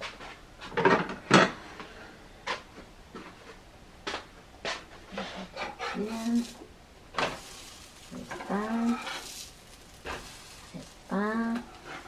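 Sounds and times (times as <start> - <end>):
kitchen knocks and clatters: 0.7 - 1.6.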